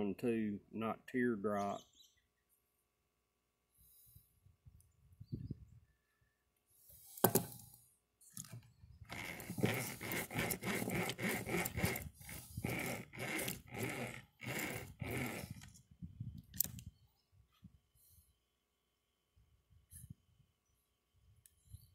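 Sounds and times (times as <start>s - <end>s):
steel cable scraping against nail: 8.4s - 15.8s.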